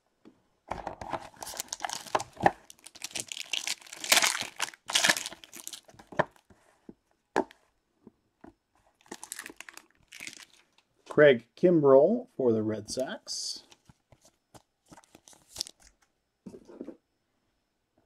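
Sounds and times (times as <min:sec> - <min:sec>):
plastic wrapping crinkling: 0:01.3 - 0:06.4, 0:08.9 - 0:10.8, 0:13.7 - 0:16.0.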